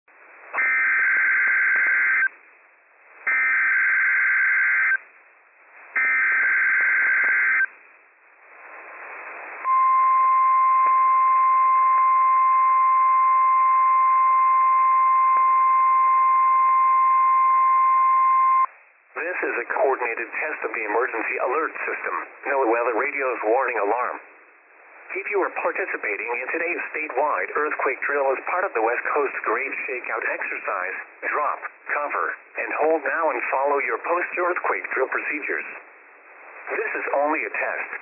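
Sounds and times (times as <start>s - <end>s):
faint radio static: 0.1s - 38.0s
steady alarm tone: 0.6s - 2.3s, 3.3s - 5.0s, 6.0s - 7.7s.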